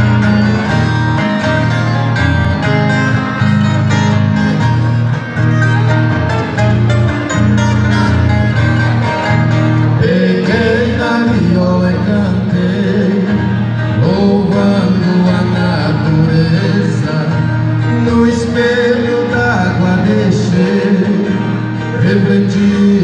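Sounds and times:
plucked guitars over bass line: 0:00.0 - 0:23.0
men singing: 0:10.0 - 0:23.0.

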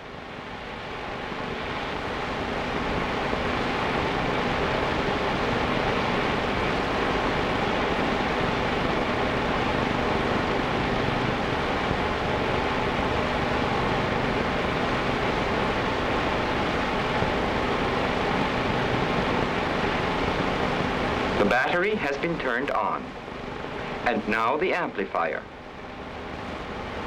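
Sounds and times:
faint low hum: 0:00.0 - 0:27.0
steady rushing noise: 0:00.0 - 0:27.0.

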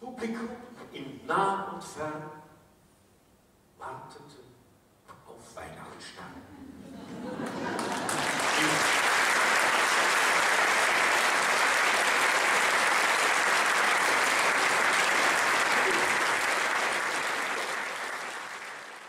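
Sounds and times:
audience applauding: 0:07.3 - 0:19.0.

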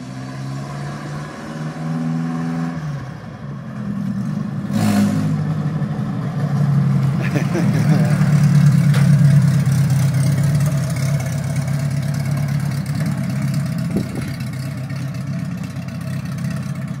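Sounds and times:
pickup truck engine driving off: 0:04.6 - 0:17.0.

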